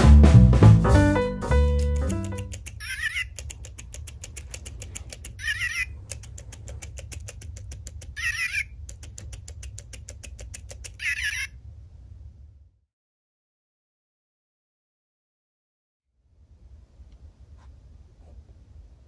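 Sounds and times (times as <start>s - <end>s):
toy mechanism clicking: 2.2s - 11.5s
low hum: 3.4s - 12.8s.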